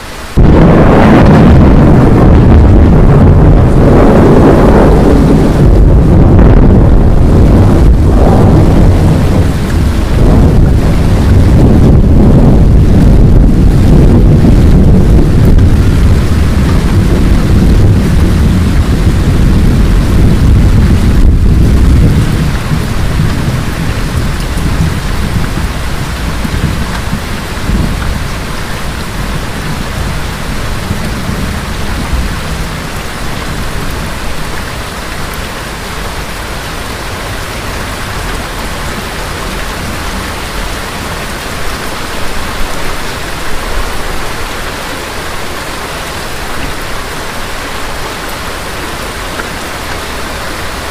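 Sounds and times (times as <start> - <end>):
steady rain: 0.0 - 50.9
low roll of thunder: 0.3 - 35.5.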